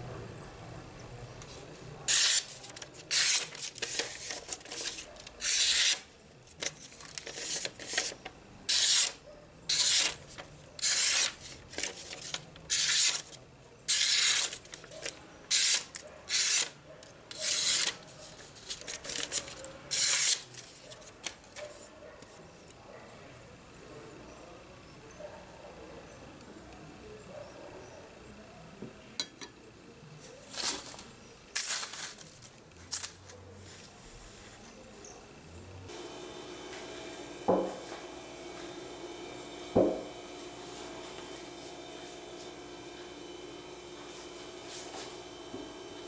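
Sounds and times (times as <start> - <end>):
knife rasping on sharpening stone: 2.1 - 2.5, 8.7 - 10.2.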